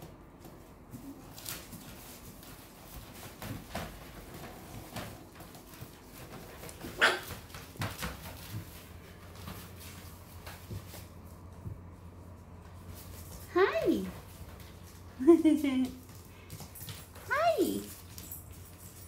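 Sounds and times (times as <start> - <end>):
puppy barking: 6.9 - 7.4.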